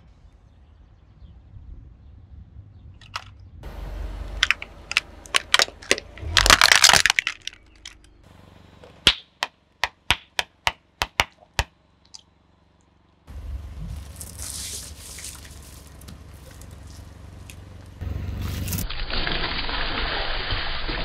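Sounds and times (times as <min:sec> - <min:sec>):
plastic cracking under car tyre: 0:04.4 - 0:08.1.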